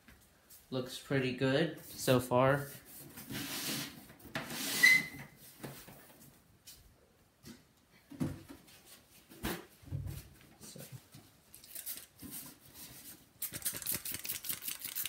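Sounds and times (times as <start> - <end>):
short squeak: 4.6 - 5.3.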